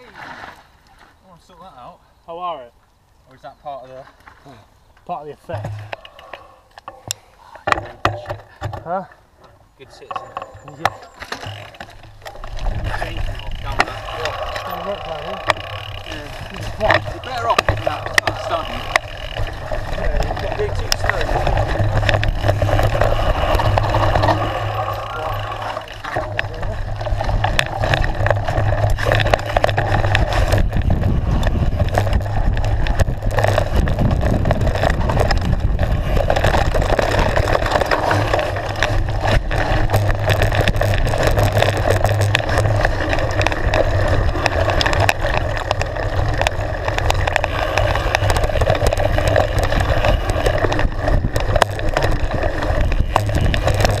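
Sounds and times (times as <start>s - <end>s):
bike knocks and rattles: 5.4s - 6.1s, 6.8s - 54.0s
tyres rolling over dirt: 9.6s - 54.0s
wind rumble on microphone: 12.0s - 54.0s.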